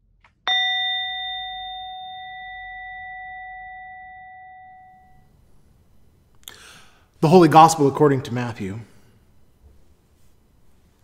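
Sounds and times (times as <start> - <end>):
metal singing bowl ringing: 0.5 - 5.4.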